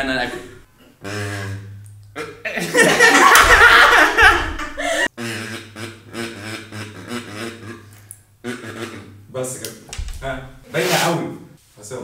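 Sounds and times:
kazoo buzzing melody: 0:01.0 - 0:02.4, 0:04.8 - 0:09.4
men laughing loudly: 0:02.2 - 0:05.2.

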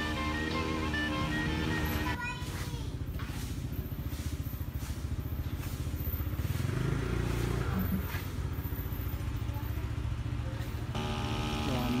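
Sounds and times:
engine idling: 0:08.6 - 0:12.0.

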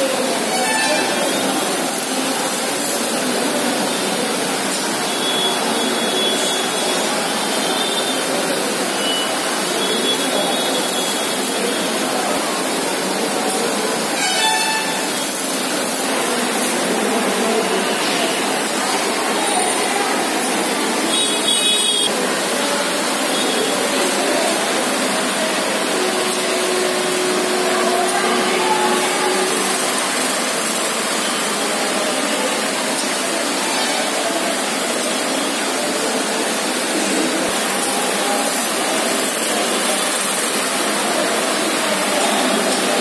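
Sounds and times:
railway station platform noise: 0:00.0 - 0:43.0
brief high sound: 0:14.1 - 0:15.3.

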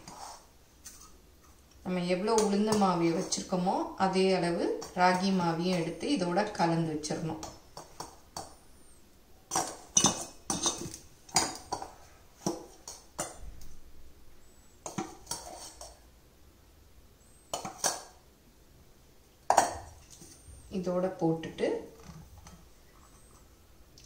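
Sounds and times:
metal spoon clinking on steel bowls: 0:09.5 - 0:11.9.

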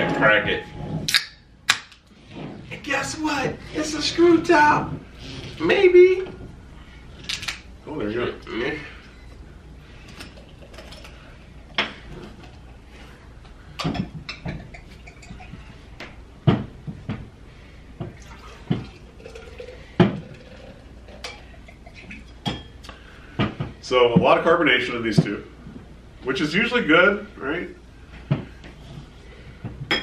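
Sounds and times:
drinks pouring into glasses: 0:10.1 - 0:11.4, 0:18.1 - 0:22.7.

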